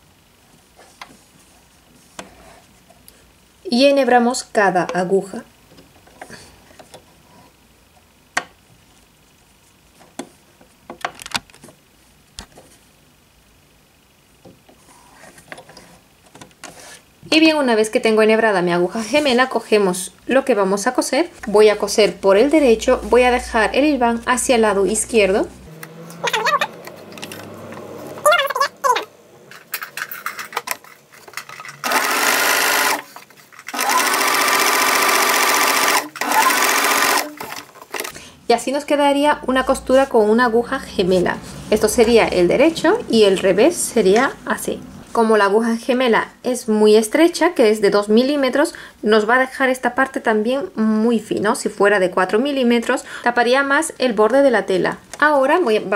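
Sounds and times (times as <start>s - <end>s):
sewing machine running: 31.8s - 38.2s.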